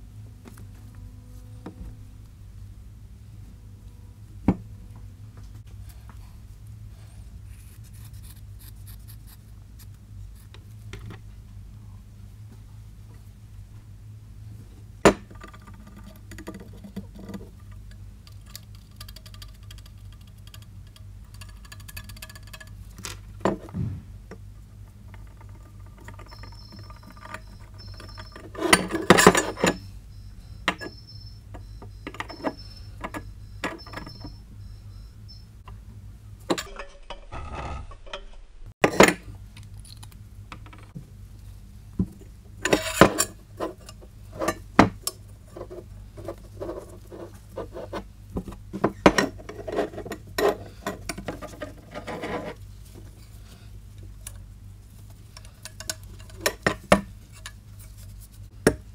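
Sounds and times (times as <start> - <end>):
metal pipes clunking and scraping: 22.5 - 29.9, 42.6 - 53.4.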